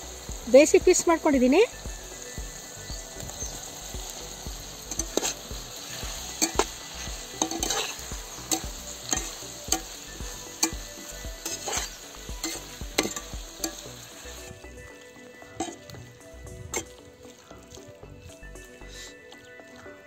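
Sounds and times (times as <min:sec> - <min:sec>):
vegetables sizzling in oil: 0:00.0 - 0:20.0
metal spatula scraping steel pan: 0:04.9 - 0:13.8.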